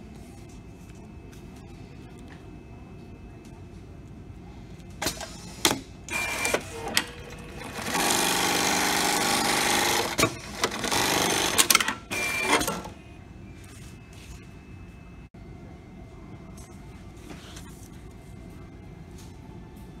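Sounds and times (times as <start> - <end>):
sewing machine running fast: 7.4 - 11.7.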